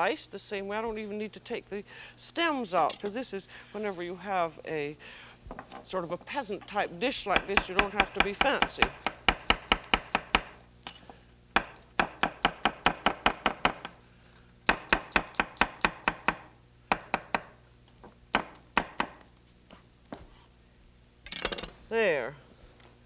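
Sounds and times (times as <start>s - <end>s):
knife chopping on wooden board: 7.3s - 10.6s, 11.6s - 13.9s, 14.7s - 17.5s.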